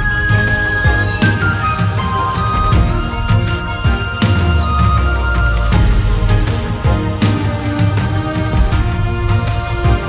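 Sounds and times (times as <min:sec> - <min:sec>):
film soundtrack music with bass: 0:00.0 - 0:10.0.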